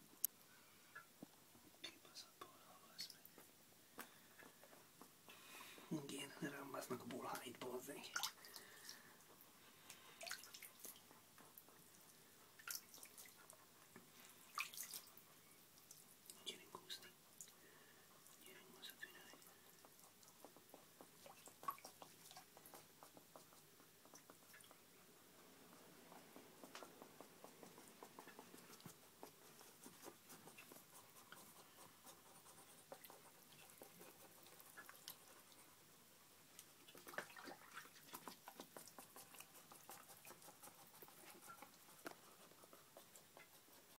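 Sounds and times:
water dripping and splashing: 6.5s - 13.6s, 14.3s - 15.2s, 18.4s - 24.9s, 36.5s - 42.2s
water splashing and dripping: 7.1s - 9.0s, 9.9s - 11.6s, 12.6s - 13.5s, 14.5s - 15.2s, 36.5s - 40.5s.

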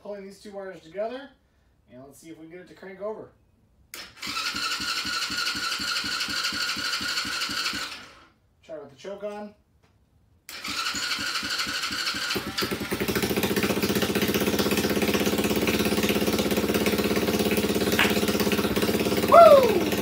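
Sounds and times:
electric starter cranking engine: 3.9s - 8.3s, 10.5s - 20.0s
engine idling: 10.6s - 20.0s
person shouting: 19.2s - 20.0s.

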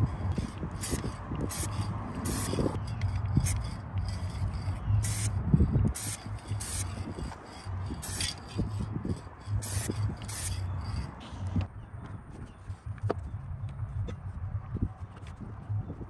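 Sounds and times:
spray paint can hissing: 0.0s - 11.6s.

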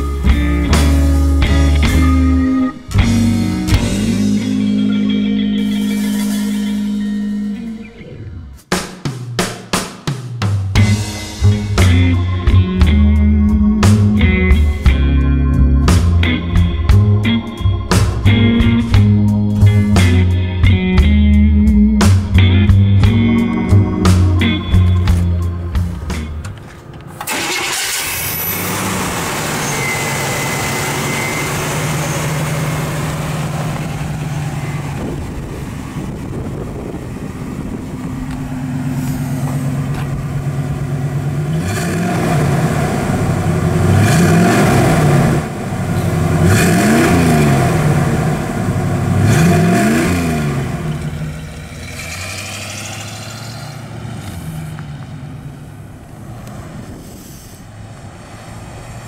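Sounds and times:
car engine idling and revving: 0.0s - 8.7s, 10.7s - 59.0s.

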